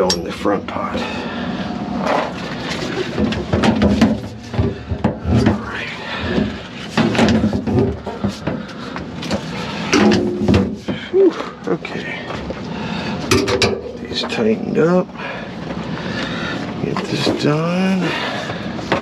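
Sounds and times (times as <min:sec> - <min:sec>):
metallic knocks and clunks: 0:13.3 - 0:13.9.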